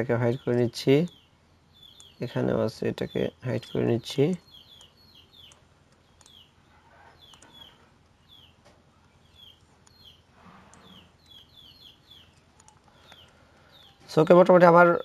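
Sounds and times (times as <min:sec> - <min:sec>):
bird chirping: 0:00.0 - 0:15.0
faint clicks: 0:03.6 - 0:06.4, 0:07.2 - 0:10.0, 0:12.3 - 0:14.4.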